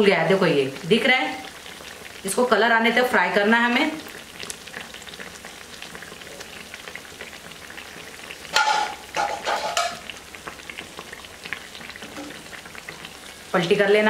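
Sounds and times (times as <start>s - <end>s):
food deep-frying in hot oil: 0.0s - 14.0s
metal spoon scraping a pan: 8.5s - 10.1s.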